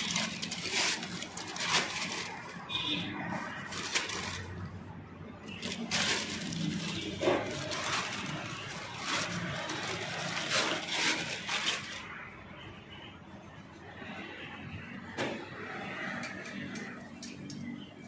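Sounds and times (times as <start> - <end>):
plastic wrapping crinkling: 0.0 - 12.3.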